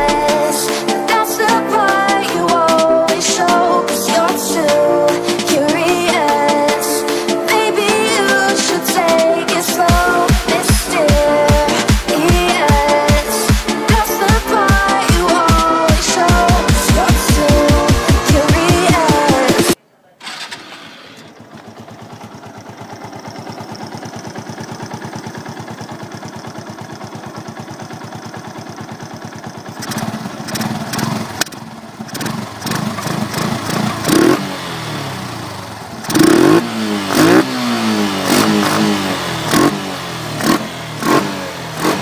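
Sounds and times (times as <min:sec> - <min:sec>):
motorcycle engine revving: 0:08.2 - 0:42.0
motorcycle engine idling: 0:20.2 - 0:42.0.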